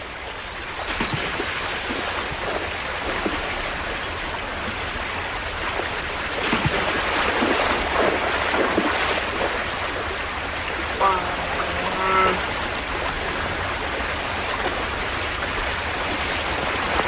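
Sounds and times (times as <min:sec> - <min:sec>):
creek water rushing: 0:00.0 - 0:17.0
bears splashing in water: 0:06.3 - 0:17.0.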